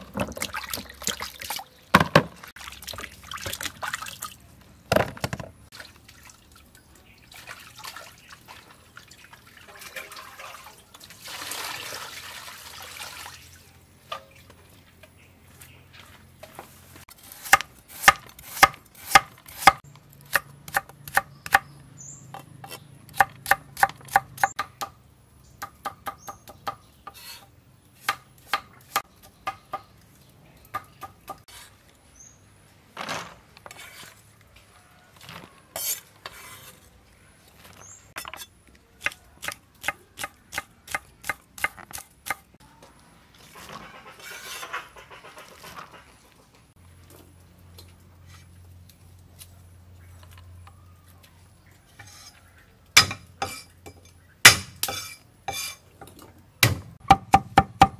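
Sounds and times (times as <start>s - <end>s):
water poured over lettuce: 5.7s - 13.6s
cleaver chopping on wooden board: 53.0s - 53.6s, 54.5s - 55.6s, 56.6s - 57.9s.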